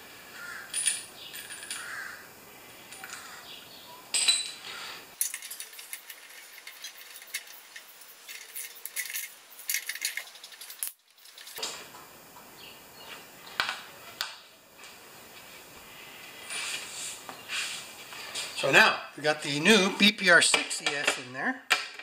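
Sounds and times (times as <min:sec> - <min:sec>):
metal clinks: 0:00.7 - 0:01.9, 0:04.1 - 0:04.6, 0:05.2 - 0:11.6.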